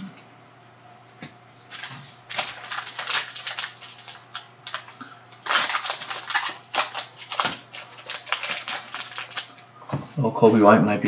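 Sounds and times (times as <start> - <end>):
foil wrapper crinkling: 1.7 - 9.7.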